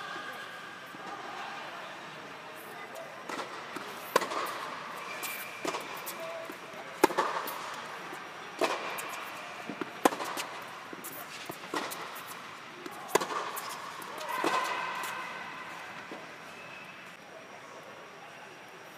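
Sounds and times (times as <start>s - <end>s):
tennis ball bouncing: 3.3s - 15.2s
racket hitting tennis ball: 3.3s - 16.1s.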